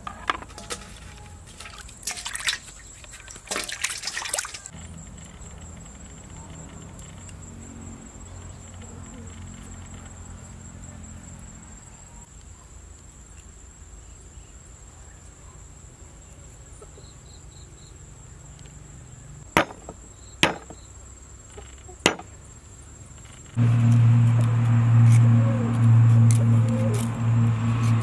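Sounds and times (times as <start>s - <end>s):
high insect whine: 0.3s - 12.3s, 19.0s - 28.0s
loud low hum: 23.6s - 28.0s.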